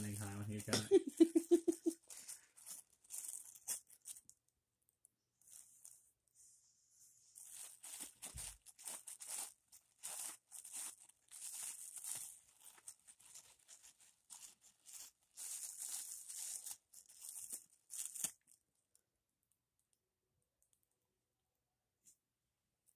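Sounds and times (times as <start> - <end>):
plastic bag crinkling: 0.0 - 4.5, 5.4 - 6.1, 7.3 - 19.0.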